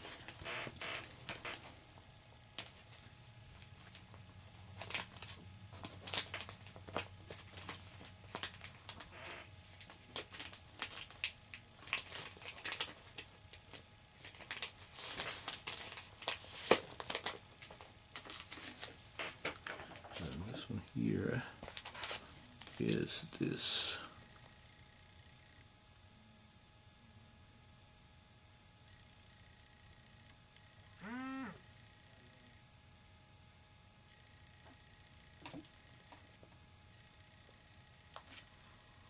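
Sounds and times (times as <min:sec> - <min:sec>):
plastic bag crinkling: 0:04.8 - 0:09.1, 0:09.7 - 0:20.9, 0:21.6 - 0:23.0.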